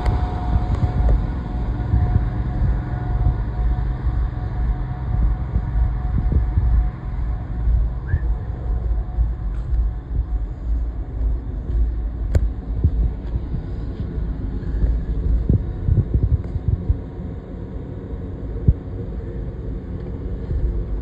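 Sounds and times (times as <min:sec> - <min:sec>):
low knocks and thumps: 0:00.0 - 0:13.8
engine low rumble: 0:00.0 - 0:21.0.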